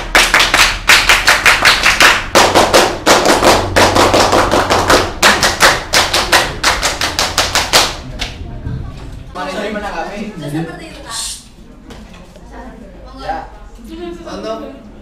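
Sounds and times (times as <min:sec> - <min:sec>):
group clapping in unison: 0:00.0 - 0:08.4.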